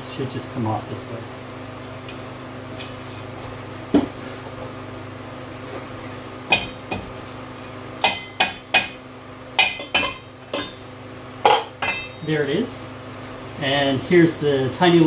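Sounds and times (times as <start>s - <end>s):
sharp metallic knocks and clinks: 11.8s - 12.3s.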